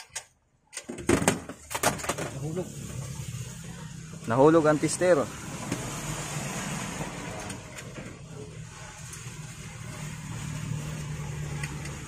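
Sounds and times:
faint clicks of metal parts: 0:00.0 - 0:00.9.

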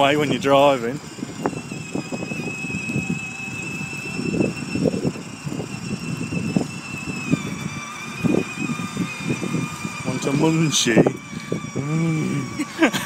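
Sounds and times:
electric motor whine: 0:00.0 - 0:13.0
plastic wheels rumbling on wet road: 0:00.0 - 0:13.0.

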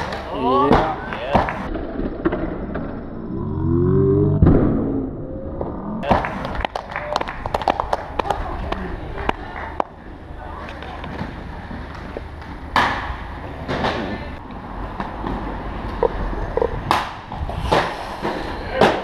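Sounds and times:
skate wheels rolling on stone: 0:06.0 - 0:19.0
wind rumble on microphone: 0:15.6 - 0:17.8.

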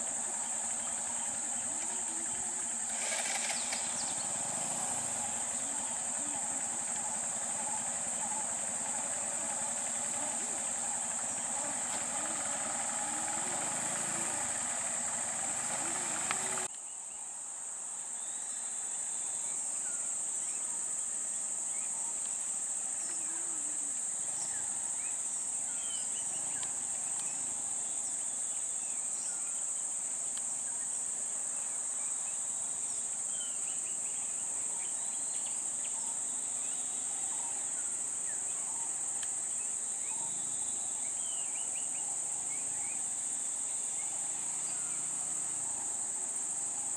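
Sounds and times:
auto-rickshaw engine idling: 0:00.0 - 0:16.7, 0:20.3 - 0:29.6, 0:32.6 - 0:46.9
high-pitched insect drone: 0:00.0 - 0:16.7, 0:18.1 - 0:46.9.

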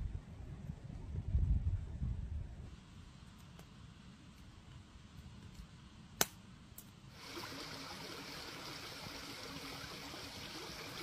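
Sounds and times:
sharp snap: 0:06.2 - 0:06.9
flowing stream babbling: 0:07.1 - 0:11.0.

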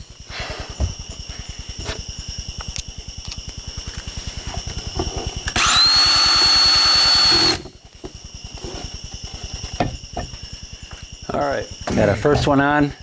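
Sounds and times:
cordless drill whining: 0:05.5 - 0:07.7.

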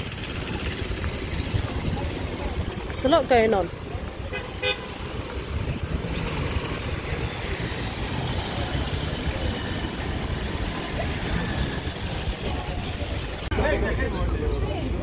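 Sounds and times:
wind buffeting microphone: 0:00.0 - 0:04.3
cars driving past: 0:04.6 - 0:12.7.

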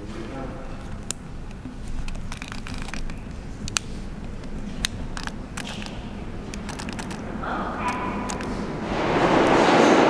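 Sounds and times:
steady low rumble: 0:00.0 - 0:10.0
sharp clicks and taps: 0:00.8 - 0:08.6.

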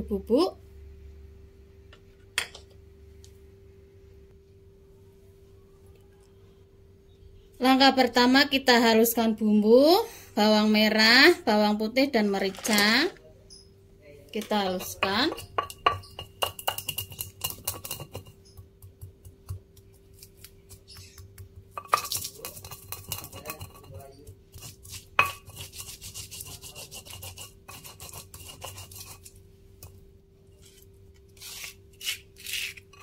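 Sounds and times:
gritty scraping of pestle: 0:14.4 - 0:33.0
pestle knocking in stone mortar: 0:14.7 - 0:19.8, 0:20.7 - 0:29.2.

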